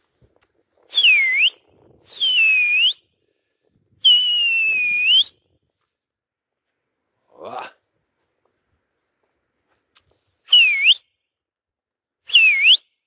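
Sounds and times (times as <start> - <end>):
man whistling loudly: 0.9 - 3.0, 4.0 - 5.4, 10.5 - 11.1, 12.3 - 12.9.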